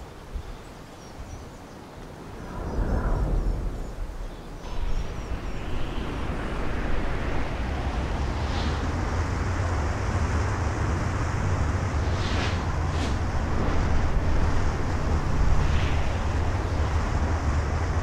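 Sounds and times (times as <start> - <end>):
wind rushing: 2.3 - 18.0
drone low rumble: 4.6 - 18.0.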